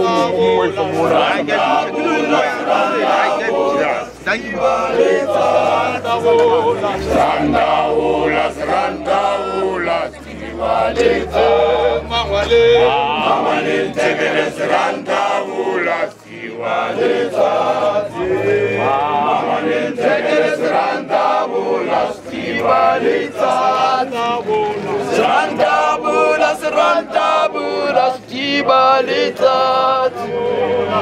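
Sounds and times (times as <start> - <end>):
men's choir singing a hymn: 0.0 - 31.0.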